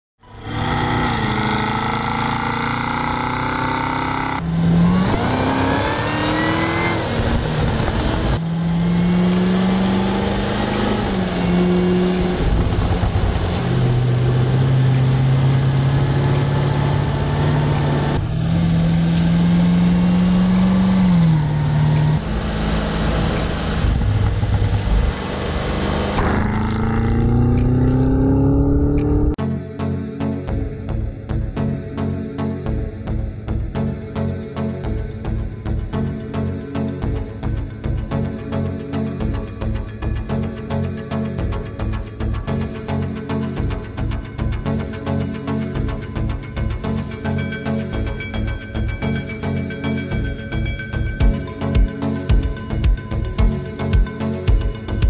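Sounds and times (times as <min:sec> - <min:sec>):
car engine accelerating and revving: 0:00.2 - 0:29.4.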